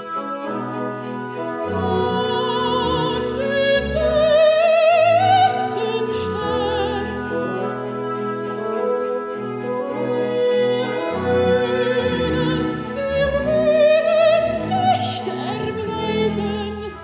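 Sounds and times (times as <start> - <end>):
chamber ensemble playing: 0.0 - 17.0
woman singing operatic style: 1.6 - 8.0, 9.9 - 17.0.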